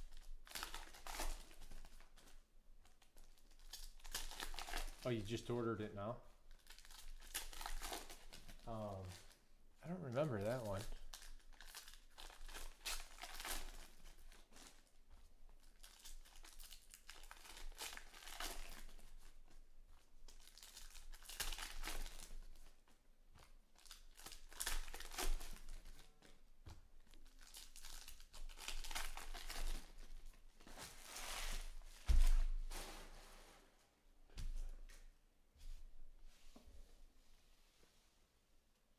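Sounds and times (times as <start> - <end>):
foil wrappers crinkling and tearing: 0.0 - 5.6, 6.5 - 15.0, 15.6 - 22.8, 23.4 - 32.9.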